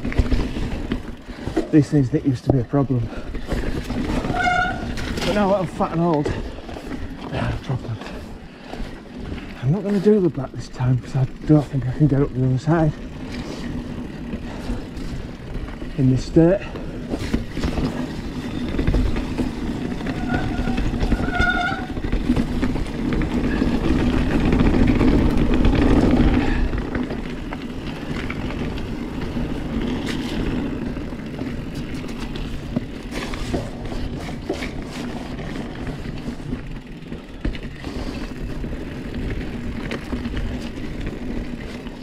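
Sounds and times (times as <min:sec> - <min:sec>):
bike tyres on dirt: 0:00.0 - 0:42.0
stones and bike rattling: 0:00.0 - 0:42.0
short squeaks: 0:04.1 - 0:05.2, 0:20.0 - 0:22.0.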